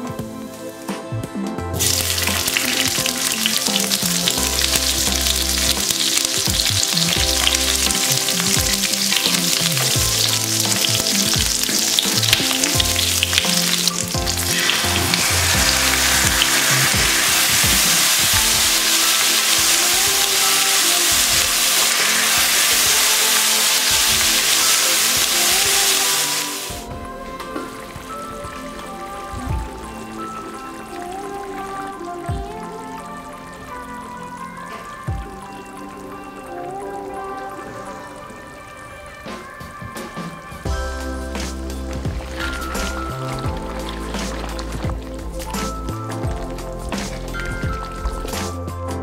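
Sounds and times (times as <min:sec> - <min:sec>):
food sizzling in frying pan: 0:01.8 - 0:26.9.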